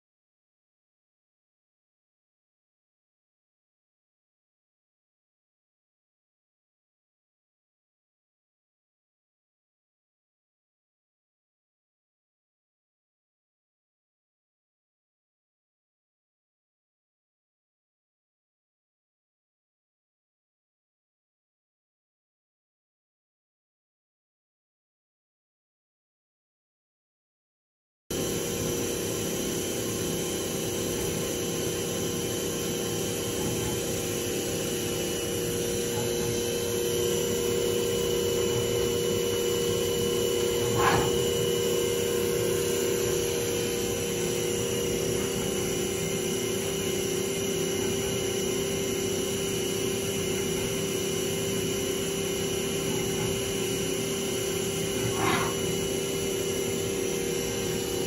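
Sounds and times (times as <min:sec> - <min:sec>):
mill spindle humming: 0:28.1 - 0:58.0.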